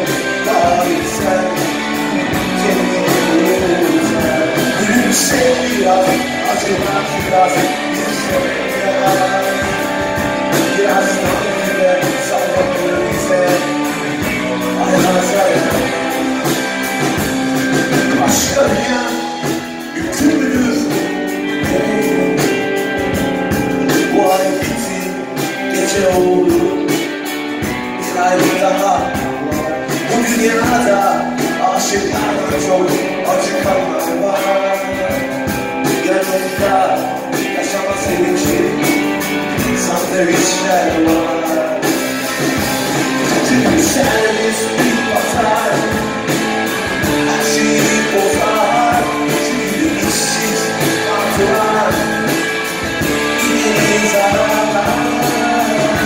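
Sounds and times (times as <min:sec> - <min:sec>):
live rock band playing: 0:00.0 - 0:56.0
man singing lead vocal: 0:00.0 - 0:56.0.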